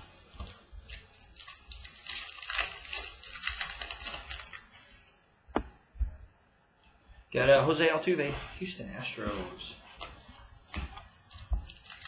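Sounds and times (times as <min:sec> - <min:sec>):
trading cards rustling and flicking: 0:10.0 - 0:12.0.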